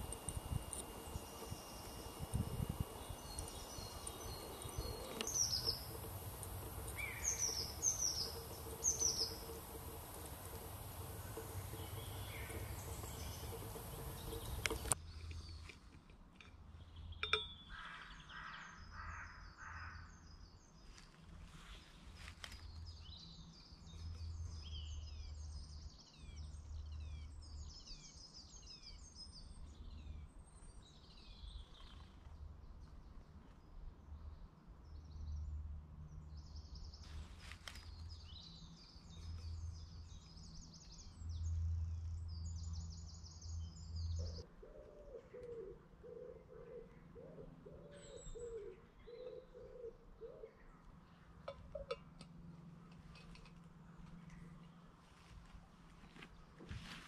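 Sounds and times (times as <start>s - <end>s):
birds chirping: 0.0s - 15.7s, 36.1s - 55.1s
background hiss: 0.0s - 15.9s.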